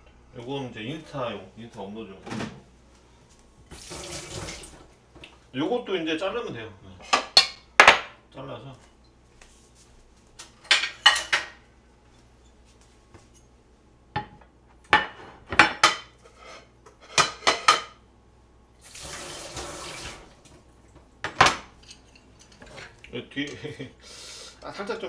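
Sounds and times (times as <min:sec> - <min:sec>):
kitchen tap running: 0:03.7 - 0:04.9, 0:18.8 - 0:20.6.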